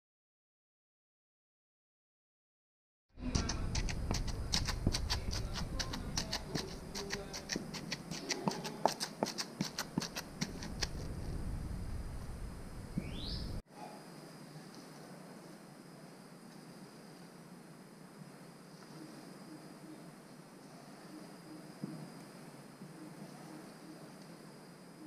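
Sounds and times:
stone pestle pounding in mortar: 0:03.2 - 0:11.0.

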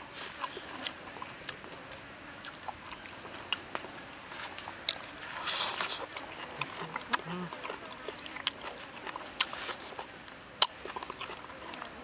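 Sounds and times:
wet chewing and smacking: 0:00.0 - 0:12.0
loud slurp: 0:05.2 - 0:10.2.

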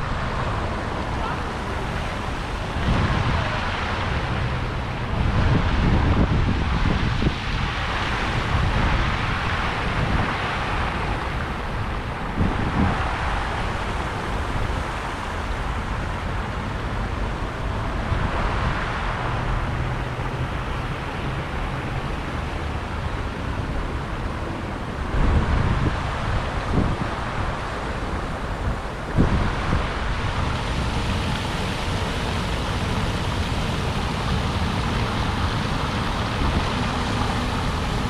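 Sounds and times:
fountain water splashing: 0:00.0 - 0:38.0
street traffic passing: 0:00.0 - 0:38.0
wind rumbling on microphone: 0:00.0 - 0:38.0.

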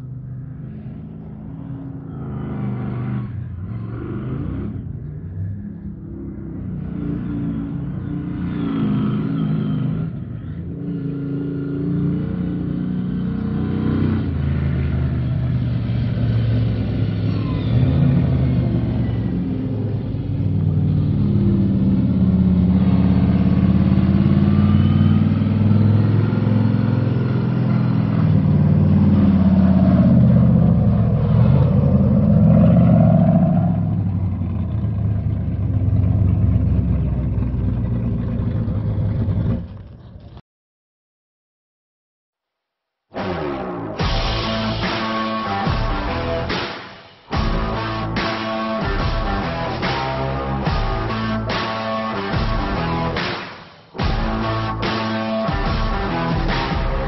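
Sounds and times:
engine revving: 0:00.0 - 0:39.8, 0:43.2 - 0:57.0.

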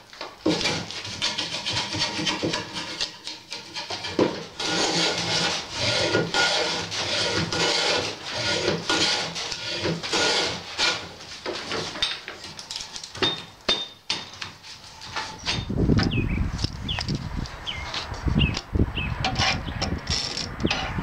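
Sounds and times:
hand plane shaving wood: 0:00.5 - 0:11.9.

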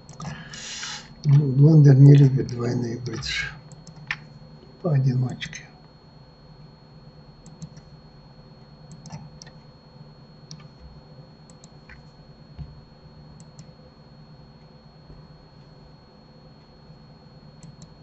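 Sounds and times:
faint high whine: 0:00.0 - 0:18.0
steady low hum: 0:00.0 - 0:18.0
computer mouse clicks: 0:03.7 - 0:04.2, 0:07.4 - 0:07.9, 0:08.9 - 0:09.6, 0:10.5 - 0:10.8, 0:11.5 - 0:12.1, 0:13.4 - 0:13.7, 0:17.6 - 0:18.0.

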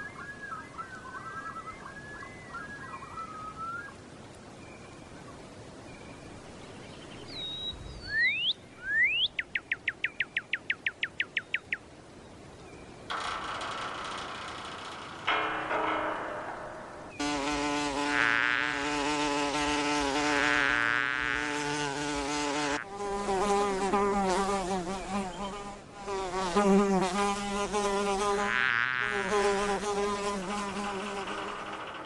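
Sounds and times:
lower buzz: 0:13.1 - 0:25.2
higher buzz: 0:13.1 - 0:32.0
cartoon insect buzzing: 0:17.2 - 0:32.0.

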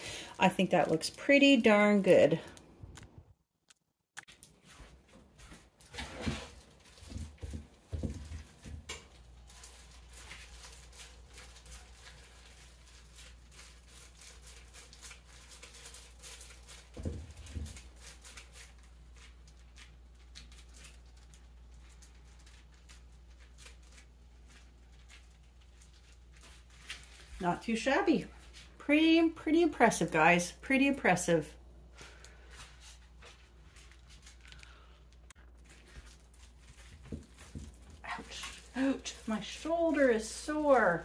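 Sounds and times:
plastic gloves crackling and squishing: 0:00.0 - 0:03.1, 0:04.2 - 0:41.0.

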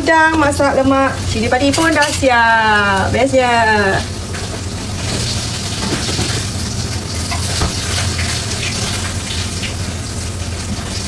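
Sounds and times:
low steady hum: 0:00.0 - 0:11.0
tap water gushing into sink: 0:04.0 - 0:11.0.

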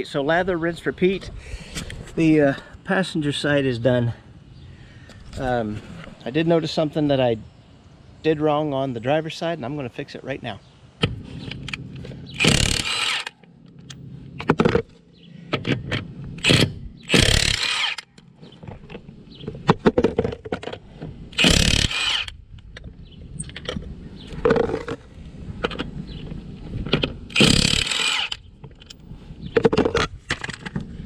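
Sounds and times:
impact wrench on lug nuts: 0:11.0 - 0:18.3, 0:19.6 - 0:22.4, 0:26.9 - 0:29.0.

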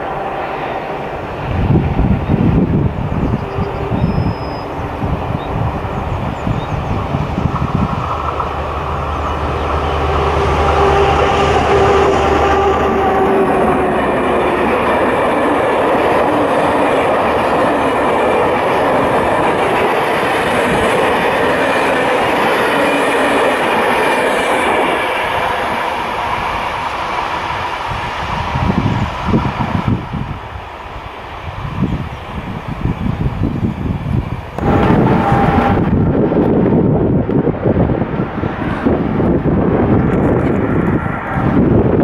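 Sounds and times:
diesel locomotive engine drone: 0:00.0 - 0:42.0
train wheels clickety-clack: 0:05.5 - 0:30.1.

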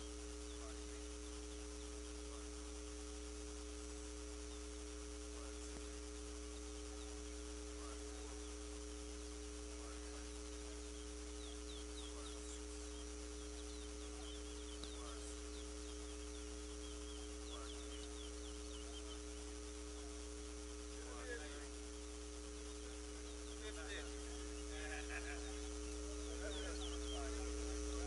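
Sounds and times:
steady hum: 0:00.0 - 0:28.0
bird chirps and whistles: 0:25.4 - 0:27.4.

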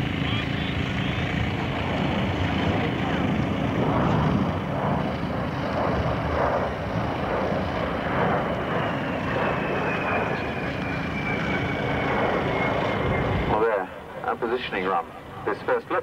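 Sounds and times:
jet plane flying past: 0:00.0 - 0:16.0.

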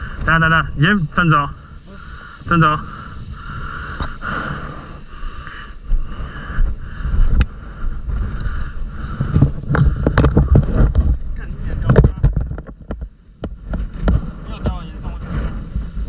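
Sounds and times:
knocks and rattles: 0:09.2 - 0:14.8.

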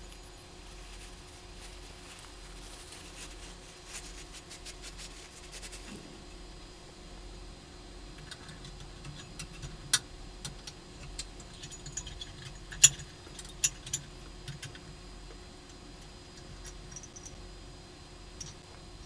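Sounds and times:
small metal hardware clicking: 0:18.4 - 0:18.6.

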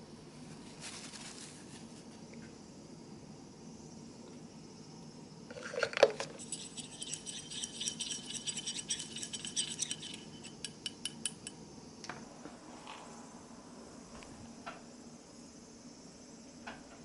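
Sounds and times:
rod clinking on metal dish: 0:06.3 - 0:11.5.

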